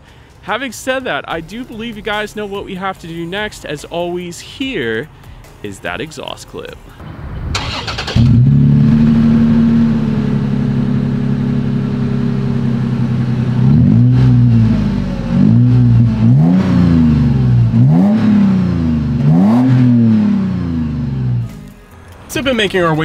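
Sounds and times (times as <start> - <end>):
car engine starting and idling: 0.3 - 23.0
engine revving: 7.0 - 21.7.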